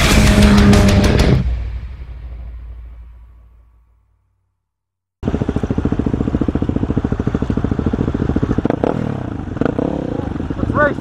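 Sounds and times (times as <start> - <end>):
dirt bike engine idling: 5.2 - 11.0.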